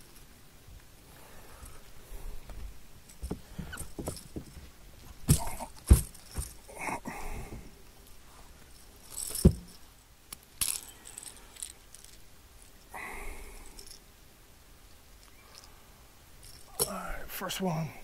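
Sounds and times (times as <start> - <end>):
rustling: 0.0 - 14.1, 14.8 - 17.0
light clinking: 3.0 - 7.0, 8.0 - 14.1, 14.9 - 15.8, 16.4 - 17.1.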